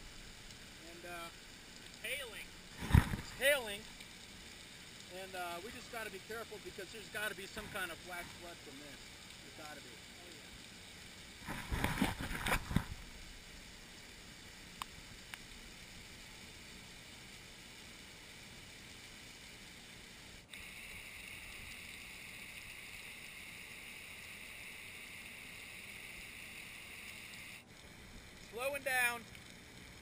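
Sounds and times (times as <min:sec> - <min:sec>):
faint rush of waterfalls: 0:00.0 - 0:10.7
rain and waterfalls hissing: 0:00.0 - 0:30.0.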